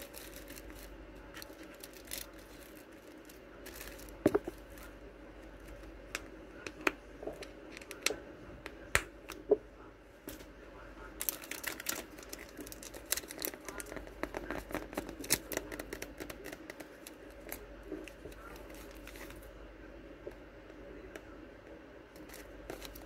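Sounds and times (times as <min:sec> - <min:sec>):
plastic packaging crinkling: 0:00.0 - 0:05.0, 0:11.2 - 0:19.4, 0:22.2 - 0:23.0.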